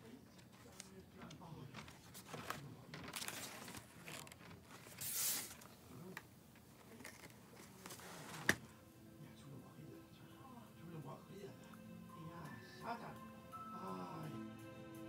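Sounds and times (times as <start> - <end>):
paper pages rustling: 0.3 - 8.6.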